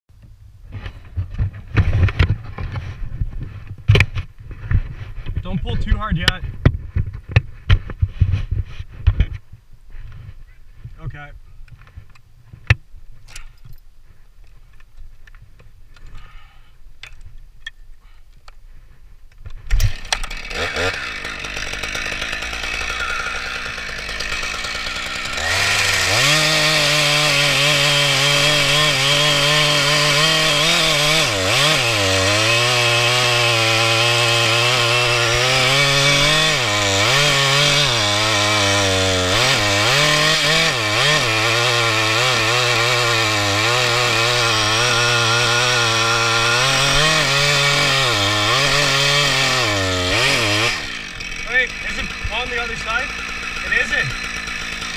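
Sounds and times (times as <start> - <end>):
chainsaw cutting wood: 19.6 - 54.9.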